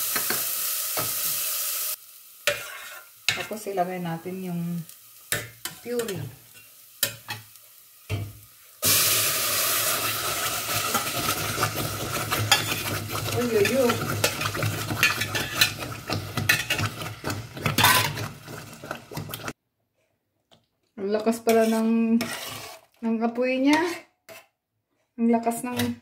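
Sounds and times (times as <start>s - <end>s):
puree sizzling and spattering: 4.5s - 19.6s.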